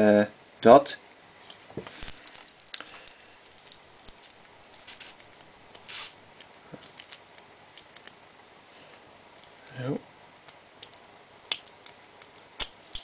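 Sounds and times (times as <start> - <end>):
light metal clicks and ticks: 2.0 - 5.8
brief rustle: 4.7 - 6.2.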